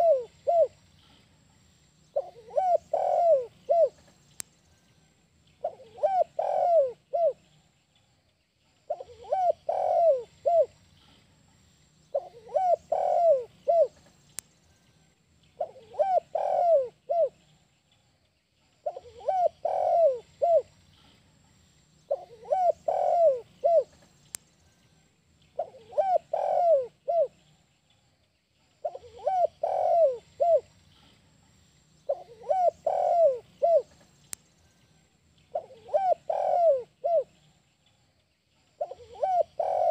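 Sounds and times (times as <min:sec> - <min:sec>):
dove cooing: 0:00.0 - 0:00.8, 0:02.1 - 0:04.1, 0:05.6 - 0:07.4, 0:08.9 - 0:10.8, 0:12.1 - 0:14.1, 0:15.6 - 0:17.4, 0:18.8 - 0:20.7, 0:22.1 - 0:24.0, 0:25.6 - 0:27.4, 0:28.8 - 0:30.7, 0:32.1 - 0:34.0, 0:35.5 - 0:37.4, 0:38.8 - 0:39.9.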